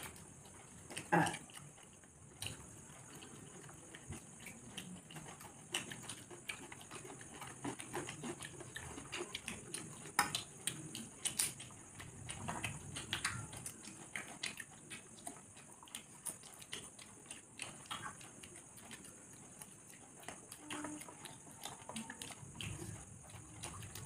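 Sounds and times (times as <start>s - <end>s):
chewing and lip-smacking: 0.0s - 24.0s.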